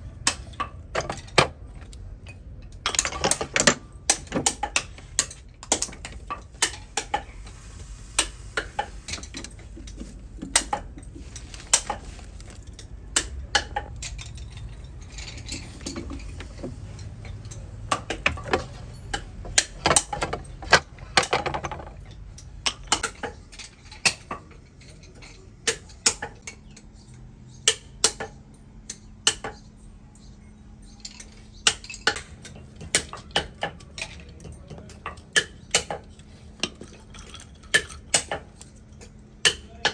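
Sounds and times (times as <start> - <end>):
metal and wooden parts clinking: 0.3 - 26.8, 30.8 - 39.9
low hum: 6.2 - 12.7.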